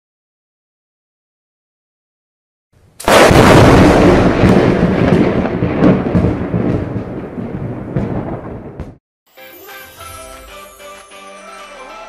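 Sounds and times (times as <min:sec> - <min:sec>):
thunderclap with rumble: 0:03.0 - 0:09.0.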